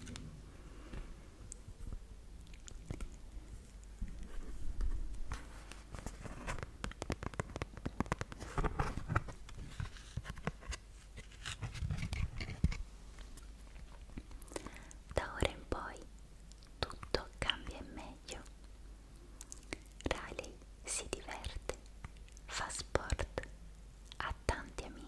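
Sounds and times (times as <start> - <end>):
book page turning: 4.1 - 13.4.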